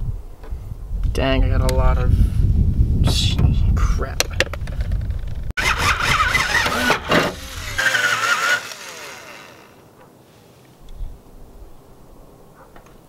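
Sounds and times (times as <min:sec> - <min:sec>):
power drill boring through steel: 0:05.6 - 0:09.8.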